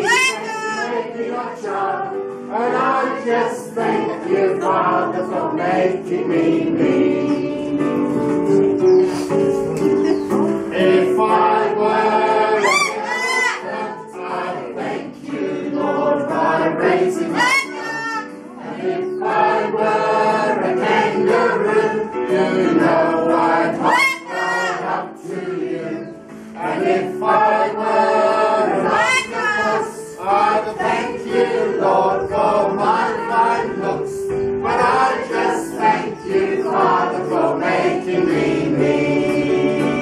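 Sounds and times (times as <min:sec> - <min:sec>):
high rising calls: 0:00.0 - 0:01.1, 0:12.4 - 0:13.9, 0:17.3 - 0:18.3
congregation singing a hymn: 0:00.0 - 0:08.8, 0:09.5 - 0:40.0
musical accompaniment: 0:00.0 - 0:40.0.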